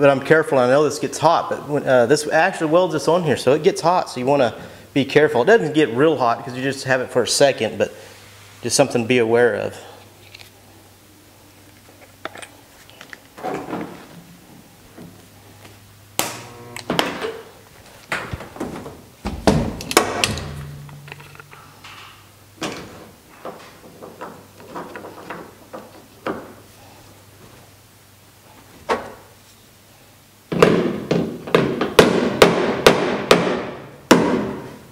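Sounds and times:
faint low hum: 0:08.8 - 0:30.5
stud welder clicks and clunks: 0:19.4 - 0:25.5.

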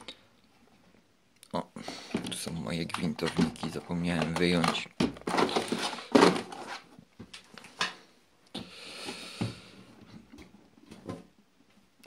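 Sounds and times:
plastic toolbox handling knocks: 0:02.9 - 0:06.6.

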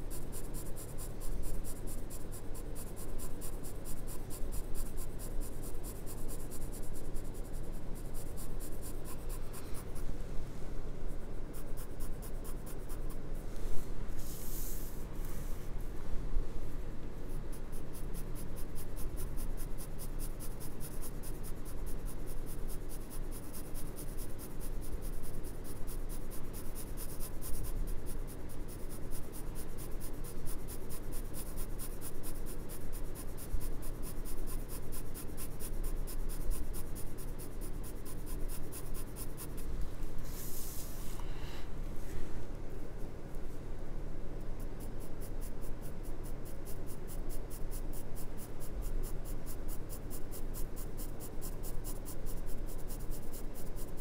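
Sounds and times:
pencil scratching on paper: 0:00.0 - 0:10.1, 0:11.1 - 0:15.6, 0:17.2 - 0:41.0, 0:44.6 - 0:54.0.

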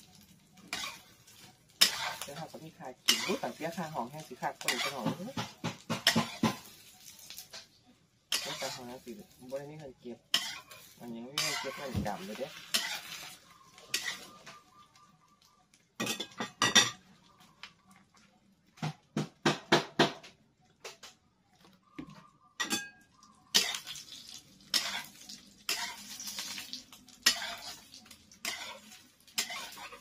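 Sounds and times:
metal utensil scraping frying pan: 0:00.0 - 0:14.6, 0:22.6 - 0:30.0
egg sizzling: 0:00.0 - 0:16.4, 0:23.5 - 0:30.0.

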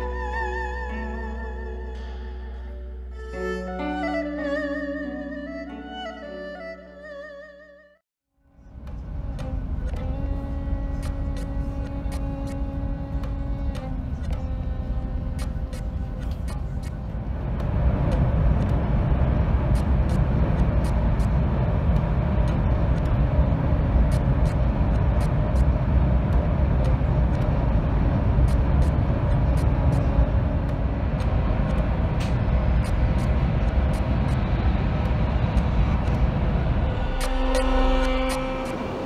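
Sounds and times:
train rumble inside cabin: 0:08.6 - 0:39.0
light ticks: 0:09.3 - 0:23.3.

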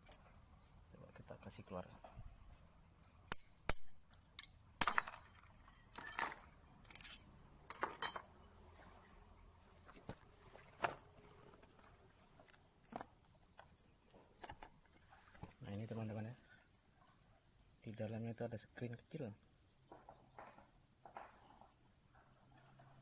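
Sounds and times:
metal parts clinking on wood: 0:03.3 - 0:08.3.

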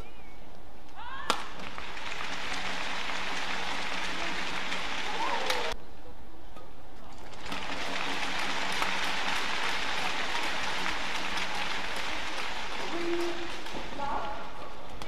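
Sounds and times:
rackets hitting shuttlecock: 0:01.2 - 0:01.8
arena crowd applause: 0:01.3 - 0:05.8, 0:07.3 - 0:14.3.

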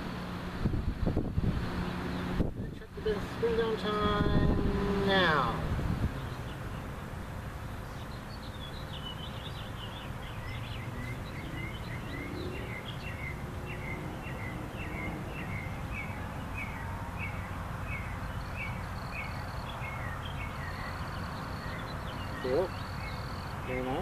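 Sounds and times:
electric fans humming: 0:00.0 - 0:24.0
bird chirping: 0:07.6 - 0:24.0.

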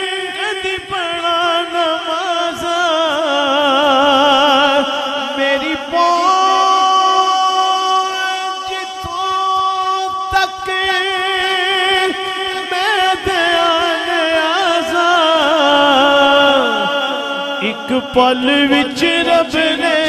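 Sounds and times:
man singing melismatic line: 0:05.4 - 0:20.0.

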